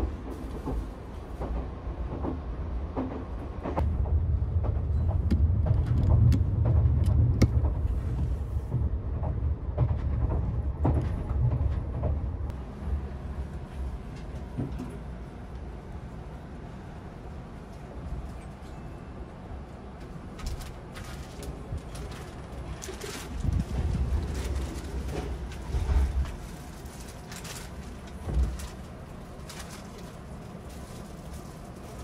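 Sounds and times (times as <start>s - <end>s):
train running rumble: 0.0s - 32.0s.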